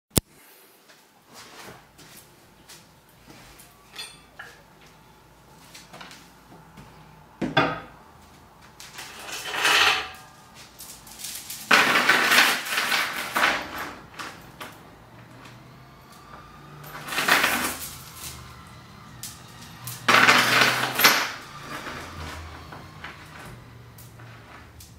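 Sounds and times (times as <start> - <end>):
chain rattling and clinking: 8.9 - 14.8, 16.7 - 18.5, 19.2 - 23.6.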